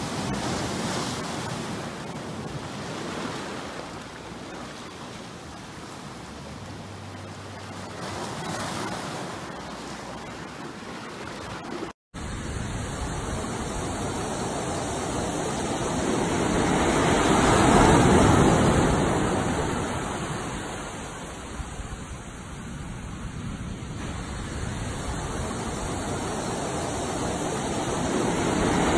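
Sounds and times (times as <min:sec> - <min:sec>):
waves breaking on rocks: 0:00.0 - 0:12.0
surf washing up sand beach: 0:00.0 - 0:28.9.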